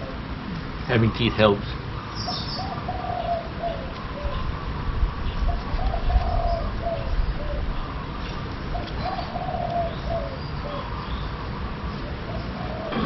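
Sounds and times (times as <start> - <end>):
dove cooing: 2.2 - 4.6, 5.3 - 8.1, 8.7 - 11.4, 12.0 - 13.0.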